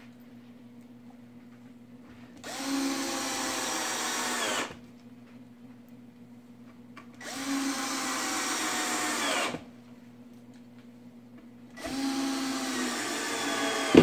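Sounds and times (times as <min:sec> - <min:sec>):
cordless drill driving screws: 0:02.4 - 0:04.8, 0:07.2 - 0:09.7, 0:11.8 - 0:14.0.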